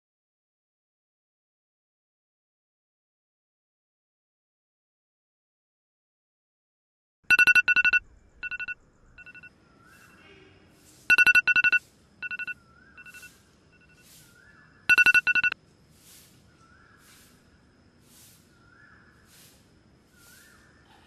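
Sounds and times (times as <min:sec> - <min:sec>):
mobile phone beeping ring: 0:07.3 - 0:09.5, 0:11.1 - 0:14.0, 0:14.9 - 0:15.6.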